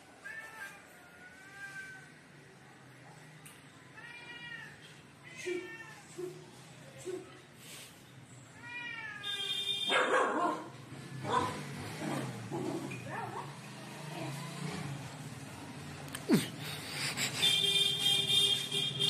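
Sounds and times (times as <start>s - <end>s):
cat meowing: 4.0s - 6.3s, 8.6s - 9.3s
puppies barking: 9.9s - 12.4s.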